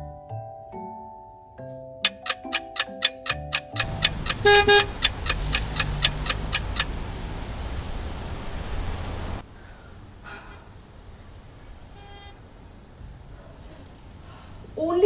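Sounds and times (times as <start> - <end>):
fast clock ticking: 2.1 - 6.9
music cue: 2.1 - 6.9
city street traffic: 2.2 - 9.4
car horn honk: 4.4 - 5.0.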